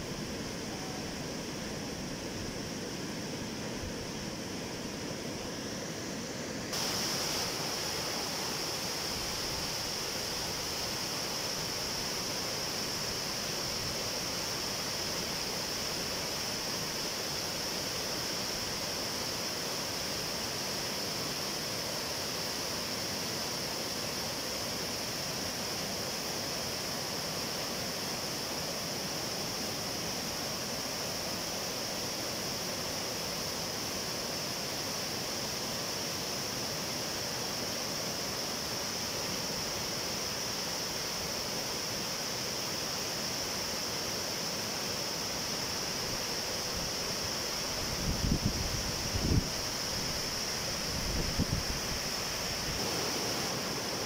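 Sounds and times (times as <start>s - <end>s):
water rushing over rocks: 6.8s - 14.7s
floodwater rushing over rocks: 51.6s - 54.0s.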